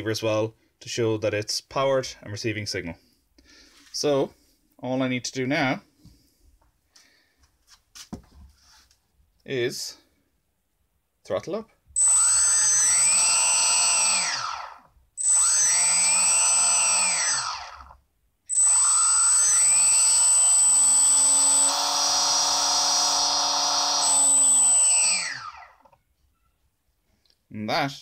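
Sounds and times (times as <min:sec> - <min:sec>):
electric motor whining: 0:12.0 - 0:26.0.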